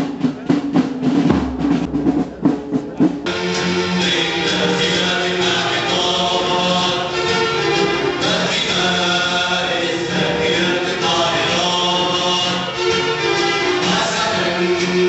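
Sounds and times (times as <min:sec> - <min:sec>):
group of voices singing in chorus: 0:03.3 - 0:15.0.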